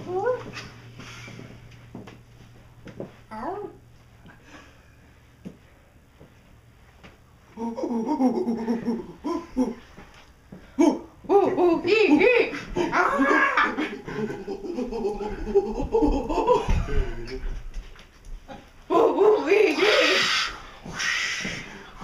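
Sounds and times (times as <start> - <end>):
group of people laughing: 12.1 - 17.5.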